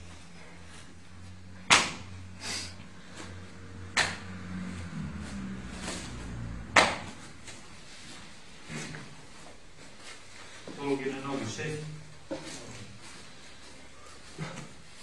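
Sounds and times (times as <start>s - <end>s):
soft rustles: 0.0s - 1.4s, 7.1s - 15.0s
steady low hum: 0.0s - 15.0s
bodies slapping on a mat: 1.6s - 2.2s, 3.9s - 4.5s, 5.3s - 10.3s.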